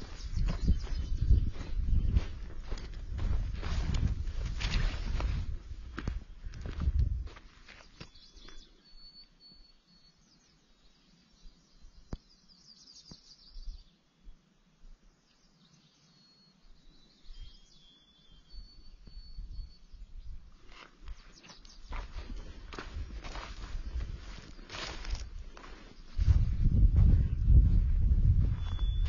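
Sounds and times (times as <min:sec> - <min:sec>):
footsteps on a trail: 0:00.0 - 0:08.8, 0:20.5 - 0:29.0
songbird whistling notes: 0:08.0 - 0:10.5, 0:16.0 - 0:20.1, 0:28.5 - 0:29.0.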